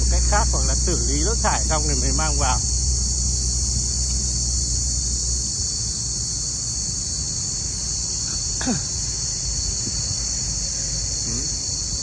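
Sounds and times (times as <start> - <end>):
low rumble: 0.0 - 6.9
high-pitched insect chorus: 0.0 - 12.0.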